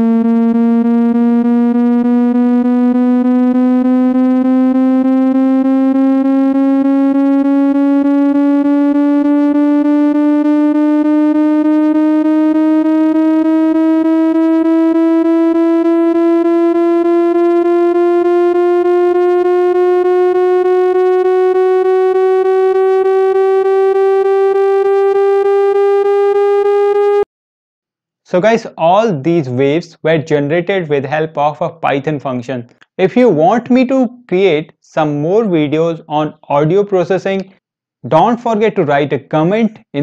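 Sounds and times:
electronic tone rising in pitch: 0.0s - 27.3s.

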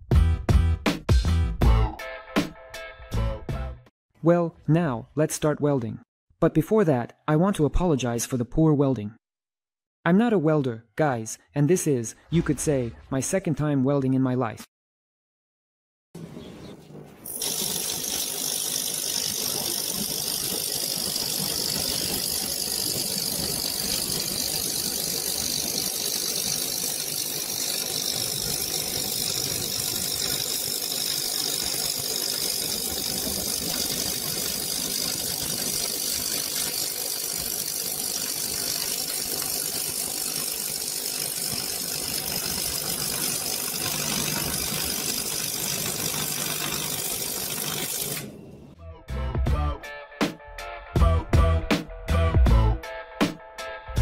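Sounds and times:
welding arc crackling: 17.2s - 48.8s.

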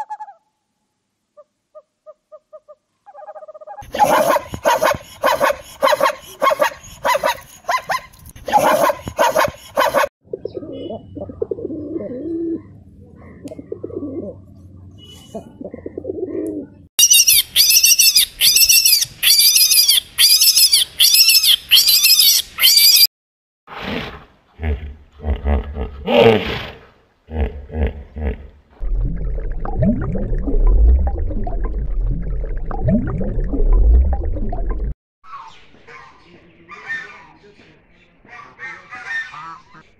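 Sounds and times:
pigeons cooing: 10.3s - 14.5s, 15.6s - 16.8s
high-pitched arching calls: 17.0s - 23.1s.

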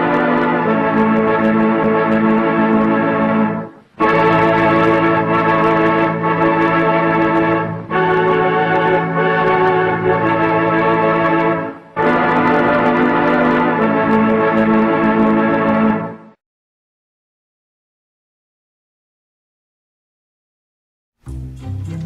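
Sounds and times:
organ playing sustained chords: 0.0s - 16.4s.

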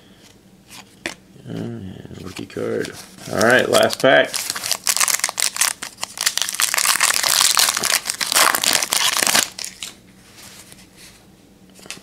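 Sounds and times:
foil wrapper crinkling: 2.4s - 10.0s.

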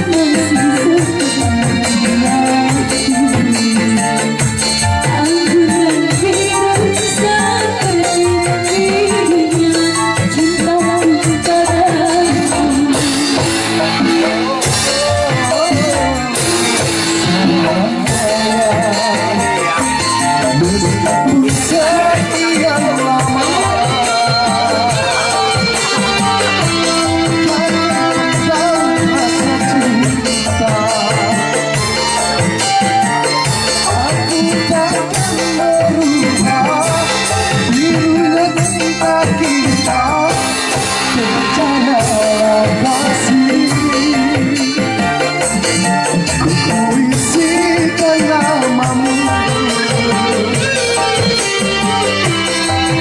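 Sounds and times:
electric keyboard: 0.0s - 53.0s
hand percussion and drums: 0.0s - 53.0s
live band playing: 0.0s - 53.0s
woman singing into a microphone: 0.0s - 53.0s.

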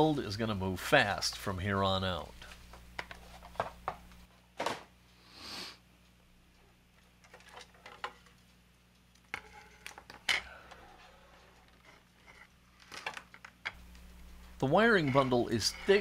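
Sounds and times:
plastic parts and wires rustling: 2.4s - 4.9s, 7.0s - 16.0s
plastic parts clicking and tapping: 7.2s - 8.4s, 12.8s - 13.8s.

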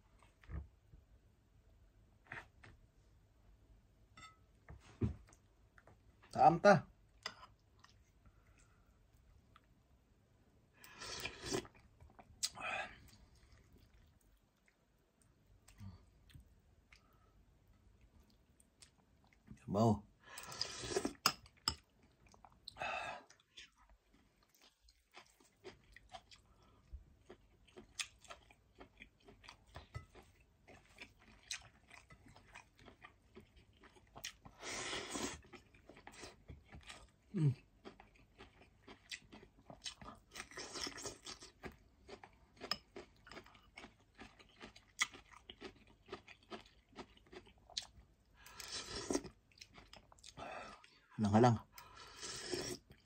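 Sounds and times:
close-up chewing: 10.8s - 19.6s, 20.4s - 51.1s
breathy sounds: 22.7s - 23.3s, 50.3s - 52.2s.

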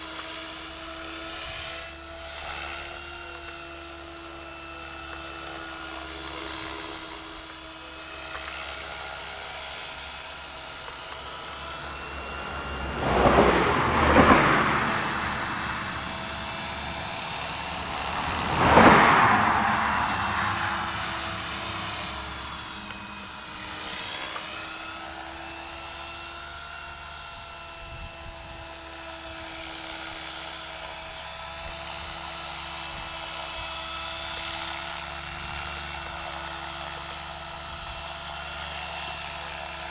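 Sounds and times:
rc helicopter rotor whine: 0.0s - 39.9s
loud whooshing: 11.1s - 23.2s.

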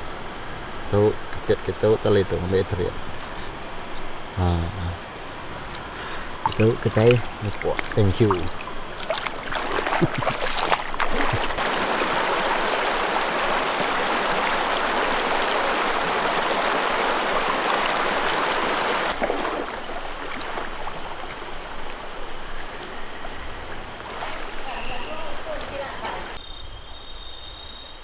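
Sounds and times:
river flowing: 0.0s - 26.4s
knocks and splashes: 6.3s - 22.0s, 23.2s - 26.4s.

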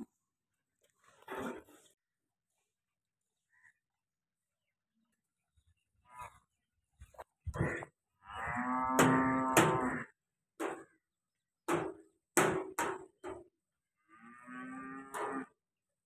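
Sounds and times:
cow mooing: 7.5s - 10.2s, 14.0s - 15.6s.

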